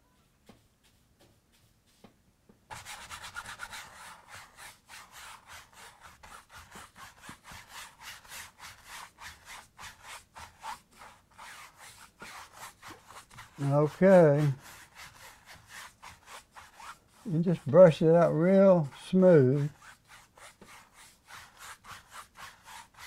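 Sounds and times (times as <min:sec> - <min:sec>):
paintbrush scrubbing canvas: 0:00.4 - 0:02.1, 0:02.7 - 0:23.0.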